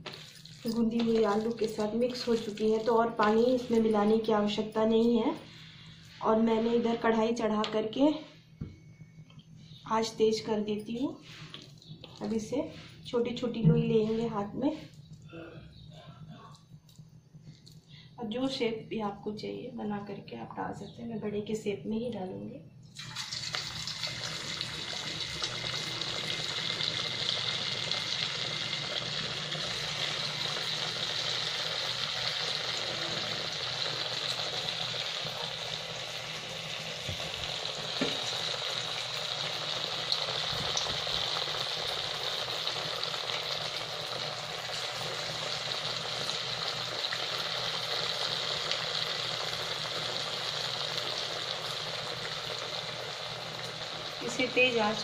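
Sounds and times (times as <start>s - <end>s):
food deep-frying in hot oil: 0.0s - 4.6s, 22.9s - 55.0s.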